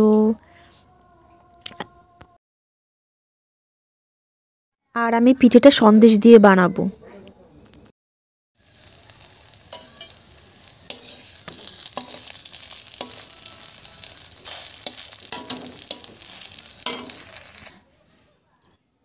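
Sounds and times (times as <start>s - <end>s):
crepe sizzling in a wok: 8.6s - 18.7s
steel spatula scraping a pan: 8.6s - 18.8s.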